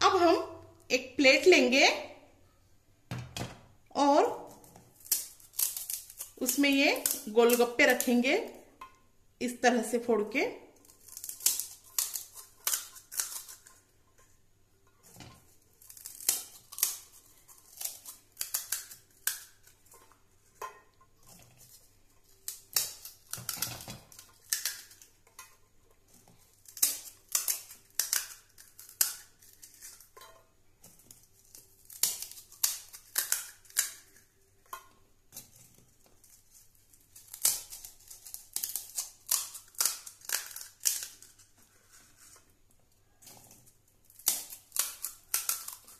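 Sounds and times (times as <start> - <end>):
crisp shells cracking: 4.5 - 8.2, 10.7 - 13.9, 15.6 - 20.6, 21.2 - 30.2, 30.8 - 45.9.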